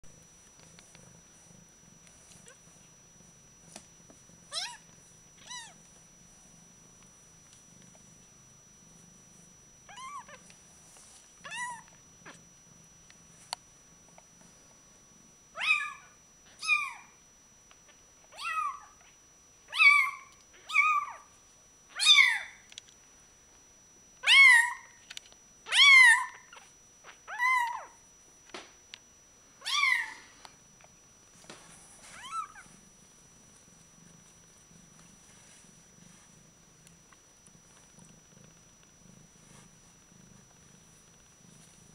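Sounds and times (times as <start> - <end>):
low purr: 0.1 - 14.4, 30.1 - 41.9.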